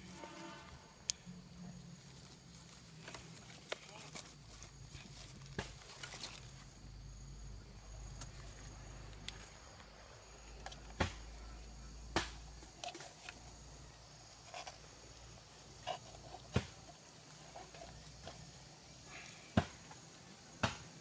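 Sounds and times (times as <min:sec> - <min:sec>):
dry bamboo and twigs snapping: 0:02.2 - 0:06.7, 0:12.1 - 0:13.5.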